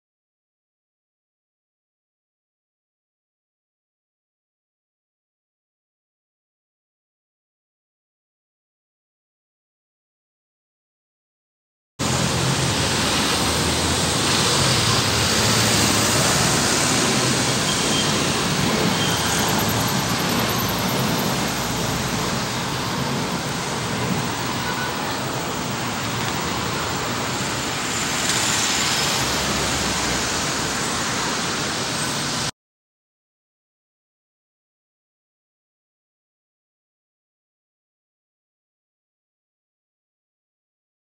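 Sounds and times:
jet engines roaring: 12.0s - 32.5s.

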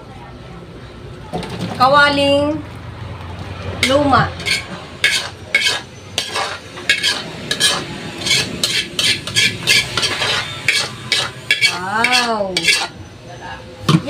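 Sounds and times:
metal ladle scraping a wok: 3.8s - 13.0s.

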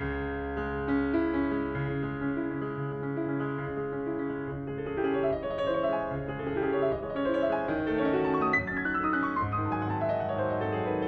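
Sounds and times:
slow grand piano piece: 0.0s - 11.0s.

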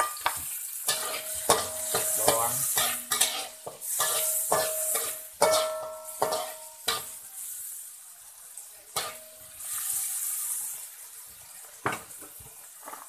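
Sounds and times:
vegetables sizzling in hot oil: 0.0s - 13.0s
metal spatula knocking on wok: 4.5s - 7.1s.

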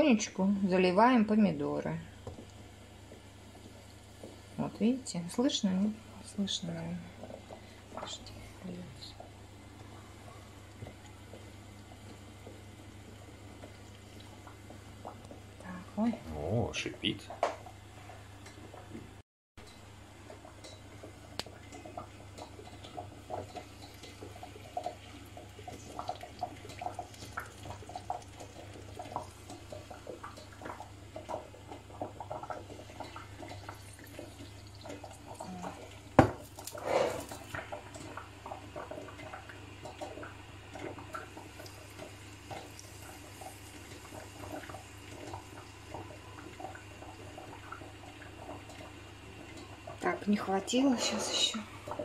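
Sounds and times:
hot oil hissing and crackling: 20.1s - 52.0s.

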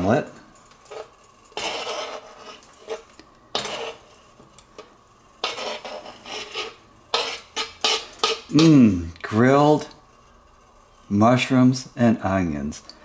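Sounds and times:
knife scraping cutting board: 0.9s - 4.2s, 5.4s - 8.5s.

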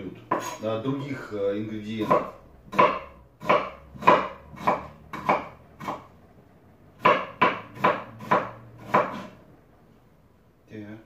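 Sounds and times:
knife chopping on wooden board: 0.3s - 0.6s, 1.9s - 6.1s, 7.0s - 9.4s.

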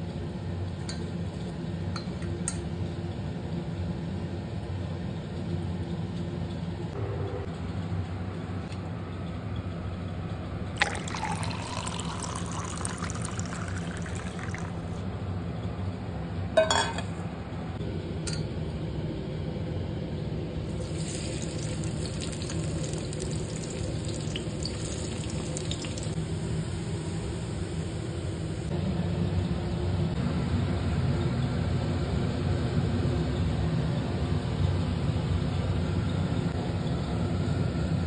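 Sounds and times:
steady low hum: 0.0s - 38.0s
water pouring: 10.8s - 15.0s, 20.7s - 26.2s.

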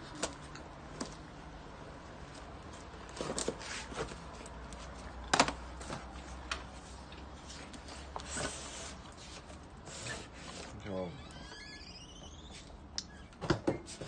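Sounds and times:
cardboard rustling and scraping: 2.3s - 10.9s.

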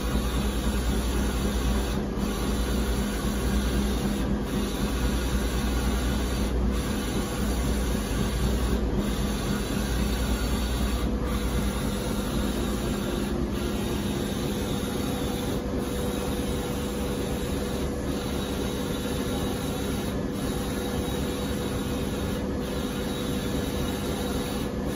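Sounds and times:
printer mechanical hum and hiss: 0.0s - 24.9s.

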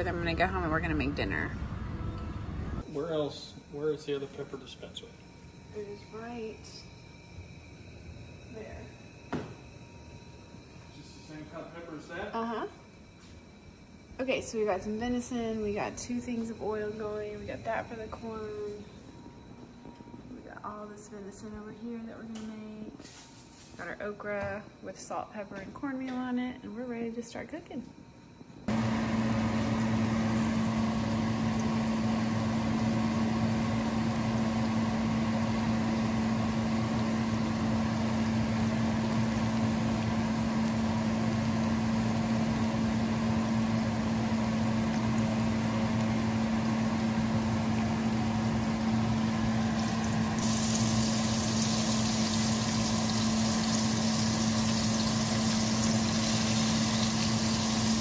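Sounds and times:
machine hum: 0.0s - 22.2s, 28.0s - 58.0s
food sizzling in hot oil: 28.7s - 58.0s.

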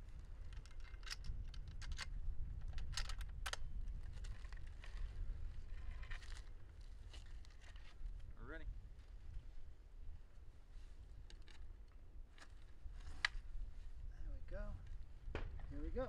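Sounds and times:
small clicks and rustles: 0.0s - 8.4s, 10.8s - 14.0s
wind rumble on microphone: 0.0s - 16.0s.

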